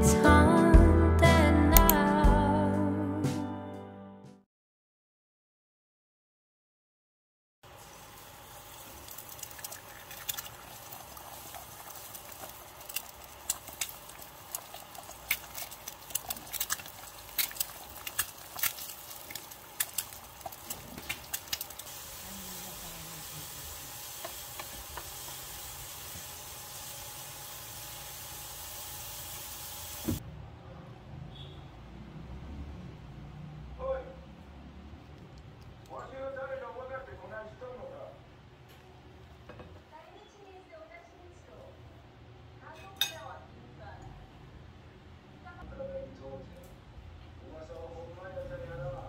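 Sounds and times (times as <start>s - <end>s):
food sizzling in hot oil: 7.6s - 30.2s
sharp crackles and pops: 8.7s - 22.0s.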